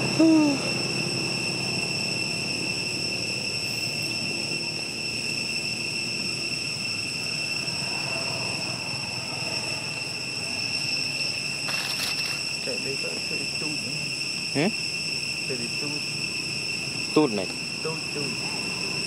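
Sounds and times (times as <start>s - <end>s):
insects droning: 0.0s - 19.0s.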